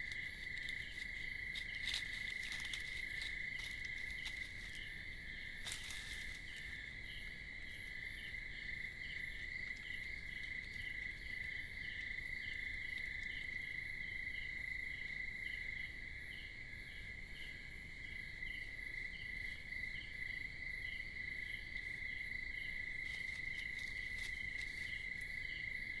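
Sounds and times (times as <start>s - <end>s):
insect high trill: 0.0s - 7.2s.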